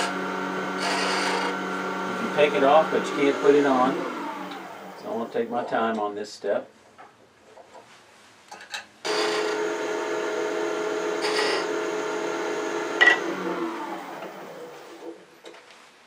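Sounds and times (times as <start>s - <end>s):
chisel scraping spinning wood: 0.0s - 4.7s, 10.4s - 15.1s
wood lathe whining: 0.0s - 5.4s, 9.1s - 15.2s.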